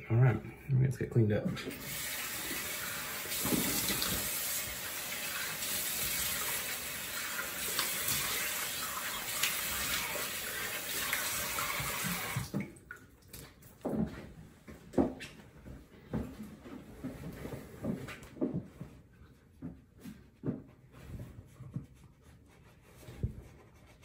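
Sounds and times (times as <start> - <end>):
sink tap running: 1.7 - 12.6.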